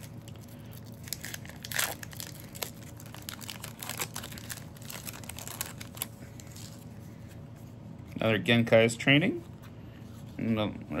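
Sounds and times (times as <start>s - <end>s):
wrapper crinkling and tearing: 0.0s - 6.9s.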